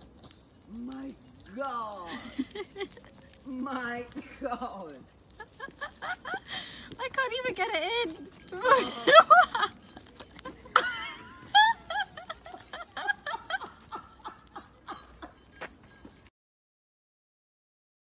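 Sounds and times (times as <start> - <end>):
person laughing: 8.6 - 15.4.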